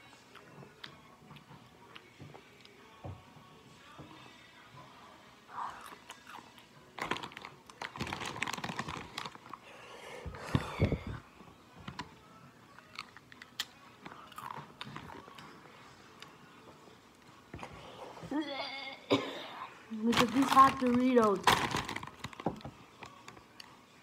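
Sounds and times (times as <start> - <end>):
foil chip bag crinkling: 7.0 - 9.6, 20.0 - 23.3.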